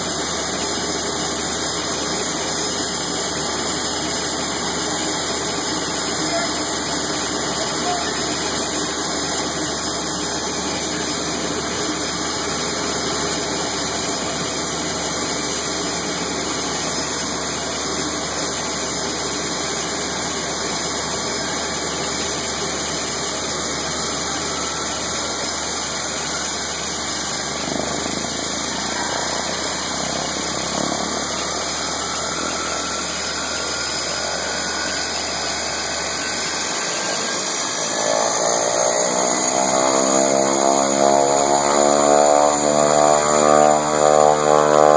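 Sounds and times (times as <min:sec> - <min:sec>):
propeller plane engine idling: 0:00.0 - 0:44.9
faint rising whine: 0:20.0 - 0:44.9.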